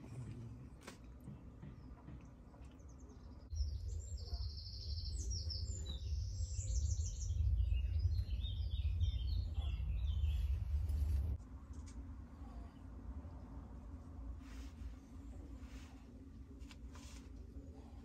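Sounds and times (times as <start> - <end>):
birds singing: 0.0 - 11.4
steady low rumble: 3.5 - 18.0.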